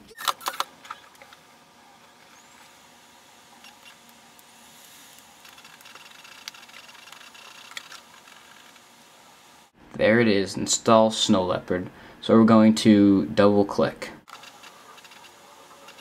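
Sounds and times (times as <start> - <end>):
disc drive whirring: 0.0 - 9.8, 14.2 - 16.0.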